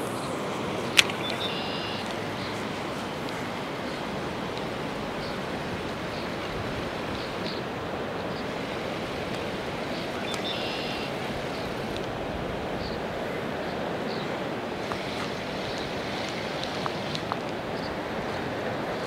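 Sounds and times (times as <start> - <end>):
flowing river water: 0.0 - 19.0.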